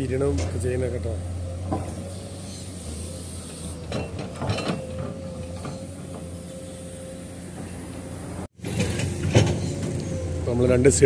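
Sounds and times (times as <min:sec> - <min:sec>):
diesel engine running with whine: 0:00.0 - 0:11.0
excavator bucket digging earth: 0:01.6 - 0:07.0, 0:08.6 - 0:10.8.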